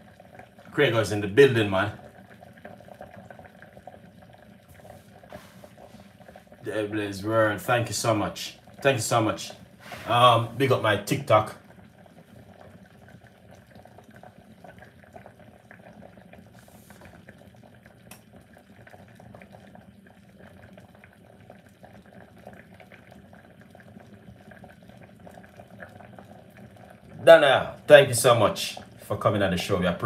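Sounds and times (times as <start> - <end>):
soup bubbling in pot: 0.0 - 30.0.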